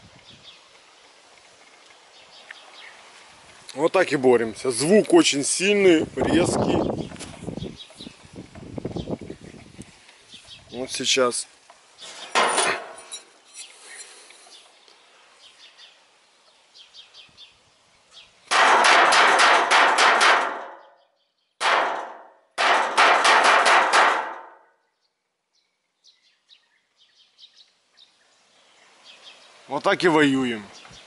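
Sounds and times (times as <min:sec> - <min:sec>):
metal rod clanging on sheet metal: 0:12.3 - 0:13.3, 0:18.5 - 0:20.9, 0:21.6 - 0:24.6.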